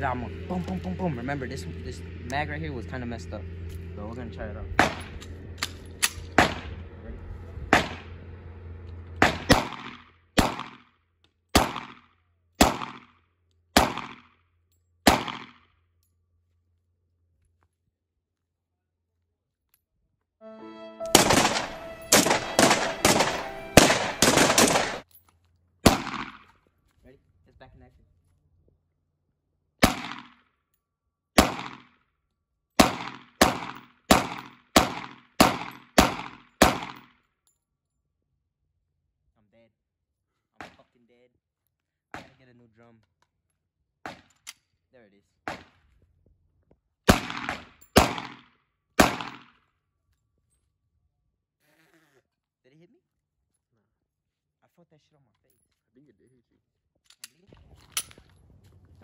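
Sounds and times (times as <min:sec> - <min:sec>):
pistol shots with echo: 0:04.8 - 0:06.7, 0:07.7 - 0:08.1, 0:09.2 - 0:10.8, 0:11.6 - 0:12.0, 0:12.6 - 0:13.1, 0:13.8 - 0:14.2, 0:15.1 - 0:15.6, 0:21.2 - 0:25.0, 0:25.8 - 0:26.5, 0:29.8 - 0:30.3, 0:31.4 - 0:31.9, 0:32.8 - 0:37.0, 0:47.1 - 0:49.6.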